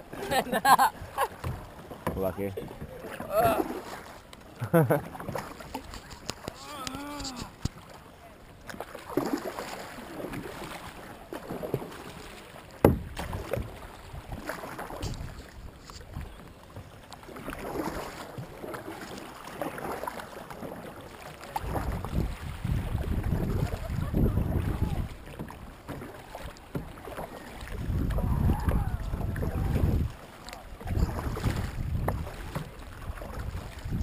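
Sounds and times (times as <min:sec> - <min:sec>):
paddle splashing in water: 0:00.0 - 0:34.0
wind rumble on microphone: 0:21.6 - 0:25.2, 0:27.7 - 0:30.2, 0:30.8 - 0:34.0.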